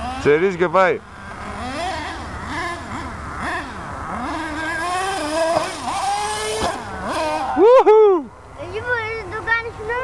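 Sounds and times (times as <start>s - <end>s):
rc truck engine revving: 0.0s - 7.7s.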